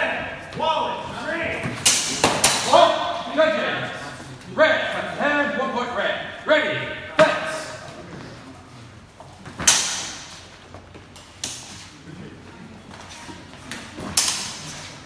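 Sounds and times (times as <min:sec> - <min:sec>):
swords clashing: 0:01.8 - 0:03.0, 0:09.6 - 0:10.4, 0:14.0 - 0:15.0.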